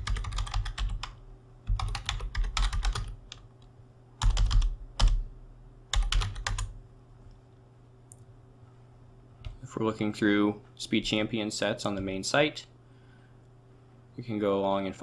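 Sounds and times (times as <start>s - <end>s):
typing on computer keyboard: 0.0s - 3.5s, 4.2s - 5.2s, 5.9s - 6.7s.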